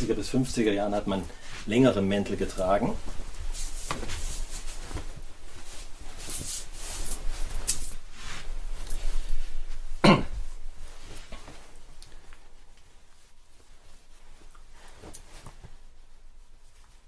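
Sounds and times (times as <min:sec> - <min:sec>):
coat rustling and swishing: 0:00.0 - 0:17.0.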